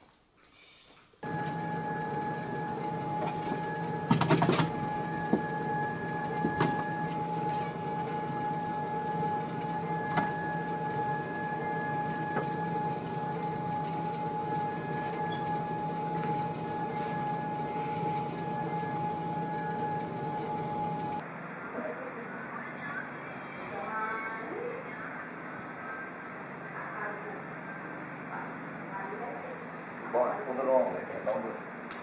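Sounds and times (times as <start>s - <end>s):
treadmill motor whine: 1.2s - 21.6s.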